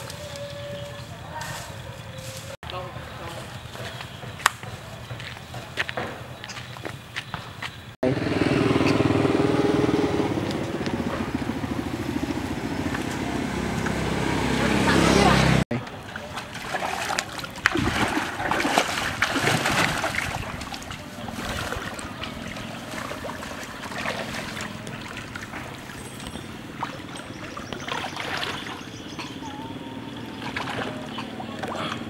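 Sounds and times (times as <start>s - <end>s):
water lapping: 10.4s - 32.0s
water splashing and sloshing: 10.4s - 32.0s.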